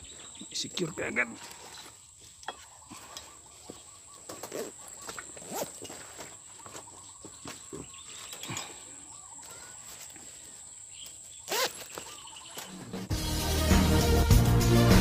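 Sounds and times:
music: 12.7s - 15.0s.

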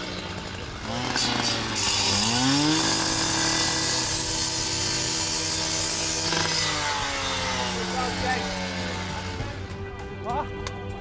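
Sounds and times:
cut-off saw cutting metal: 0.0s - 9.7s.

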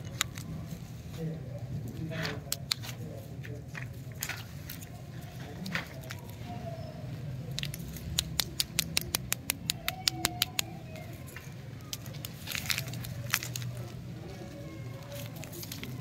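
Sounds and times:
plastic wrappers crinkling: 0.0s - 1.6s, 7.4s - 16.0s.

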